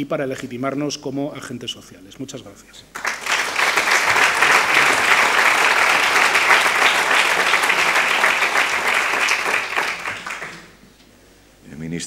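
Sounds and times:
audience applauding: 0:03.0 - 0:10.8.

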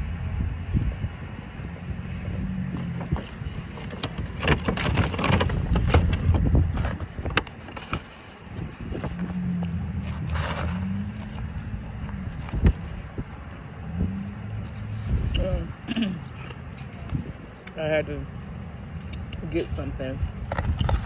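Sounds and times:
steady low rumble: 0:00.0 - 0:16.0
cardboard box crackling and scraping: 0:01.9 - 0:13.2.

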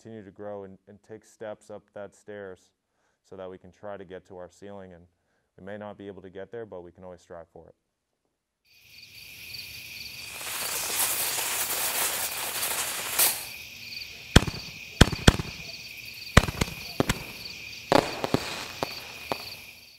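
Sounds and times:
fizzing crackling fuse hiss: 0:09.5 - 0:19.9
steady high chirping: 0:09.7 - 0:19.9
sharp firecracker pops: 0:10.4 - 0:13.6, 0:14.3 - 0:19.9.

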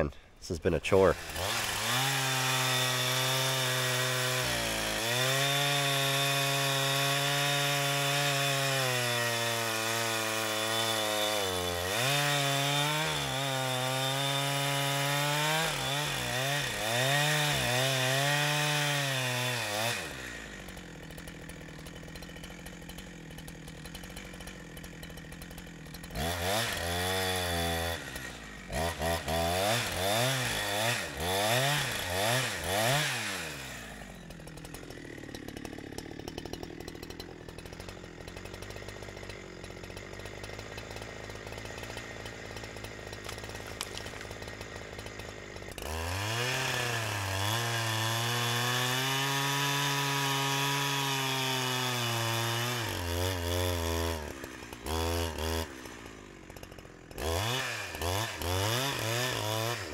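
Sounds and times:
chainsaw cutting at high revs: 0:00.0 - 0:59.9.

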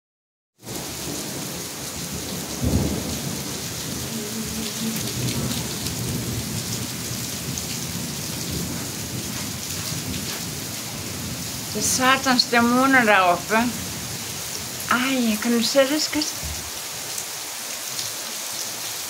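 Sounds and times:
thunder clap and rumble: 0:00.6 - 0:14.9
heavy rain: 0:00.6 - 0:19.0.

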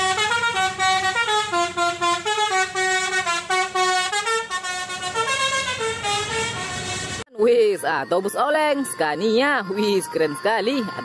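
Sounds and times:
multi-tone musical bus horn: 0:00.0 - 0:07.3.

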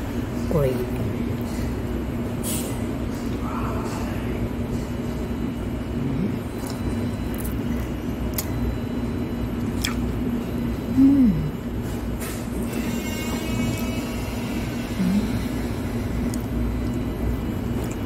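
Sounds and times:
restaurant background rumble: 0:00.0 - 0:18.0
falling voice-like hum: 0:10.8 - 0:11.6, 0:14.9 - 0:15.6.

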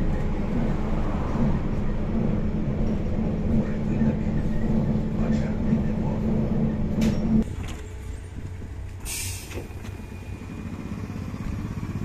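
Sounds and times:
trolleybus cabin drone: 0:00.0 - 0:12.0
compressed air hiss: 0:09.0 - 0:09.6.

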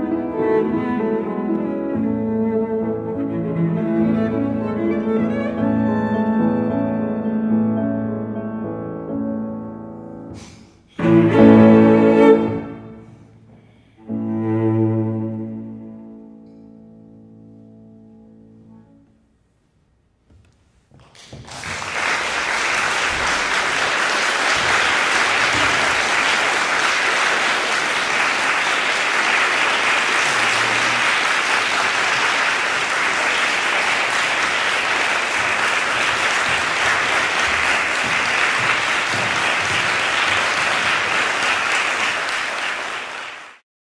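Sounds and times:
audience applauding: 0:21.0 - 0:43.6.

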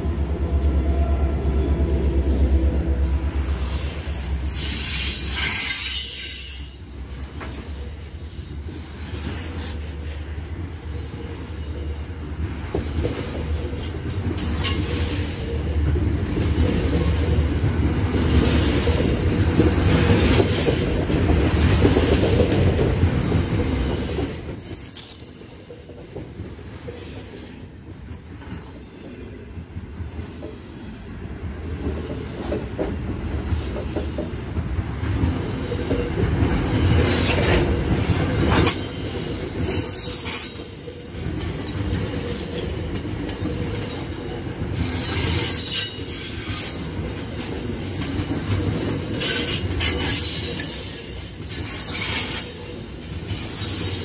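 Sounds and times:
freight train wheels rumbling: 0:00.0 - 0:54.0.

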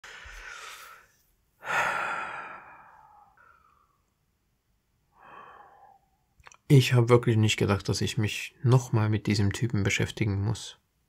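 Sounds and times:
man sighing heavily: 0:01.6 - 0:03.9.

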